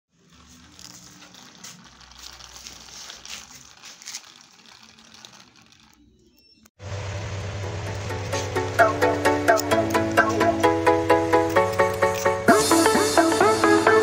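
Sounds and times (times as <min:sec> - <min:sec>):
scraping on concrete floor: 0:00.1 - 0:06.7.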